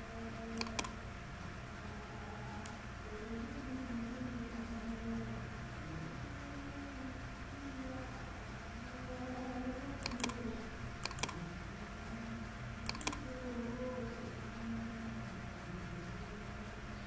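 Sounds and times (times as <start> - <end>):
steady background hum: 0.0 - 17.0
computer mouse clicks: 0.6 - 1.0, 10.0 - 10.4, 11.0 - 11.4, 12.8 - 13.2.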